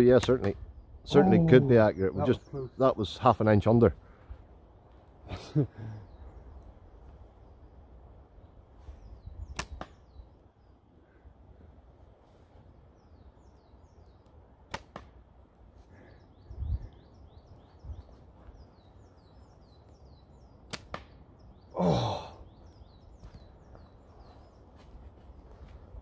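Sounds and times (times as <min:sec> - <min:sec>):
small birds singing: 0:00.0 - 0:26.0
person exclaiming: 0:01.1 - 0:01.8, 0:21.8 - 0:22.4
slingshot snapping: 0:09.5 - 0:09.9.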